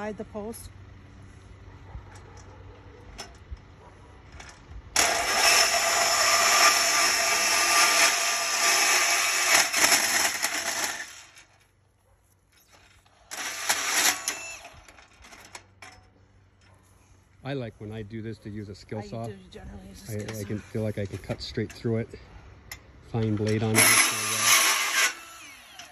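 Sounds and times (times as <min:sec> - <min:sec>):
band saw cutting aluminum: 0:05.0 - 0:11.6, 0:13.2 - 0:15.2, 0:23.4 - 0:25.9.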